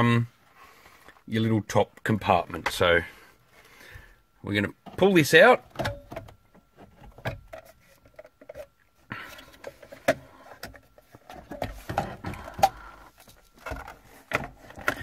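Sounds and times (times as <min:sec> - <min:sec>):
plastic scraping: 0:06.8 - 0:15.0.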